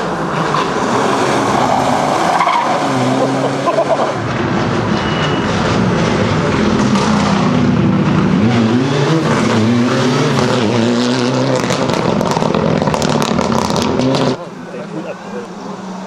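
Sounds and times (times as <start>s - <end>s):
rally car engine revving past: 6.5s - 14.5s.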